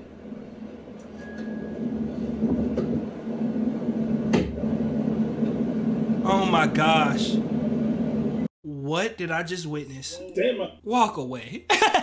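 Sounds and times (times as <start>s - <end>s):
car cabin engine hum: 1.7s - 8.5s.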